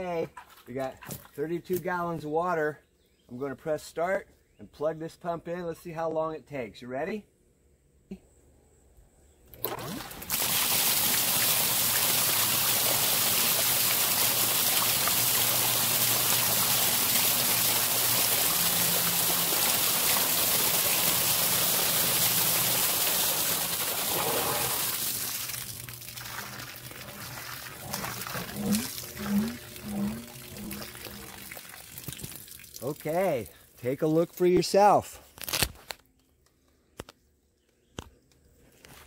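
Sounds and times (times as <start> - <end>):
low motor hum: 9.4 - 32.5
water rushing from pump: 9.6 - 33.6
water trickling: 10.0 - 33.6.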